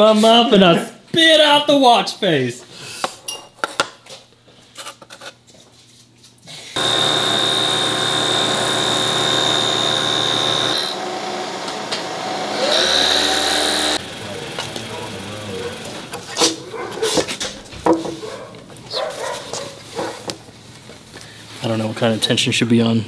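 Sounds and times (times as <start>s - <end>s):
milling machine cutting metal: 6.8s - 16.4s.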